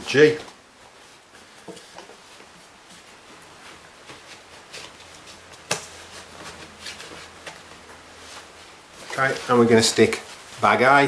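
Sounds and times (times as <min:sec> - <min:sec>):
paper bag rustling and crinkling: 0:03.5 - 0:10.9.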